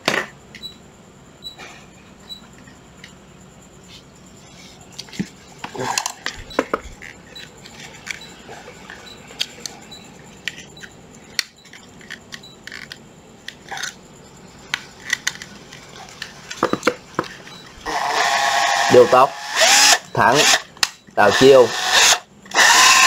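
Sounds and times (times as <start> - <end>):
plastic and metal objects clicking: 10.4 - 14.0.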